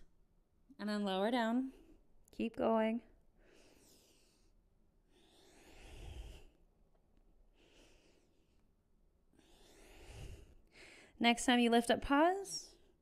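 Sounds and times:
woman breathing: 3.2 - 11.2.

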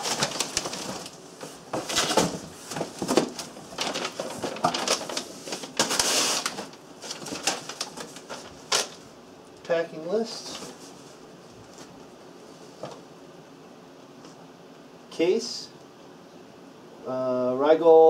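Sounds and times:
cardboard and paper rustling: 0.0 - 9.0, 10.2 - 12.0.

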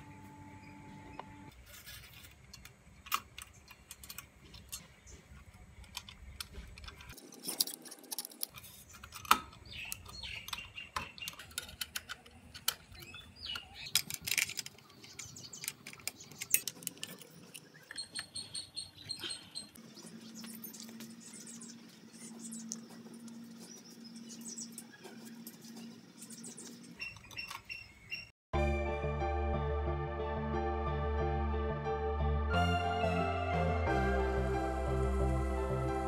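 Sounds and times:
small metallic clicks and taps: 2.5 - 18.4.

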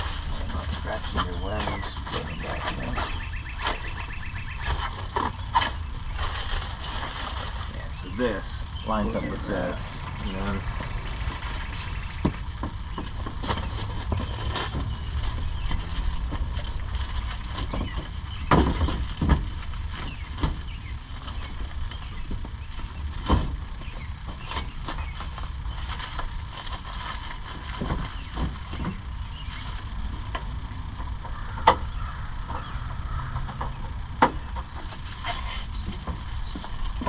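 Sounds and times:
steady low rumble: 0.0 - 37.0.

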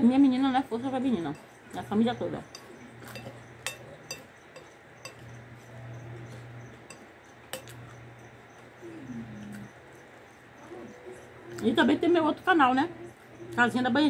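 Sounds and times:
metal spoon clinking on glass bowl: 1.0 - 9.7.

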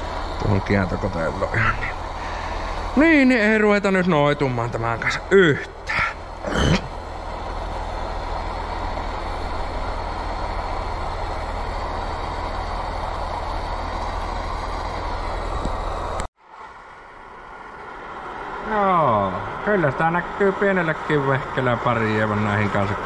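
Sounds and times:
induction heater buzzing: 0.0 - 23.0.

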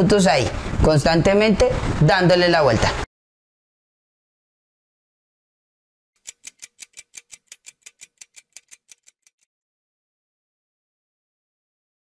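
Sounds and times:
clock ticking: 6.2 - 9.4.

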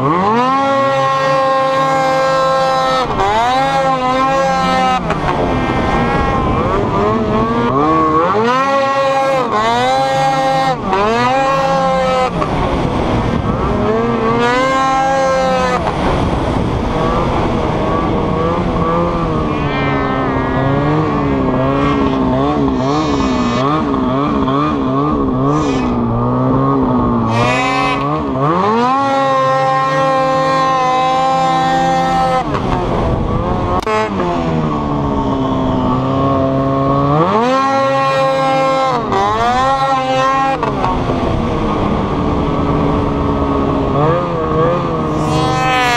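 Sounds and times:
snowmobile engine revving: 0.0 - 45.9.

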